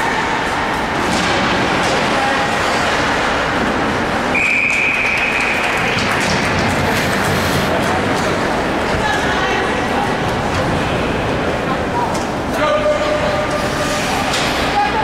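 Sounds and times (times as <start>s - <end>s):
hockey rink noise: 0.0s - 15.0s
knocks of sticks and puck: 1.0s - 3.7s, 4.3s - 8.5s
referee's whistle blast: 4.3s - 5.6s.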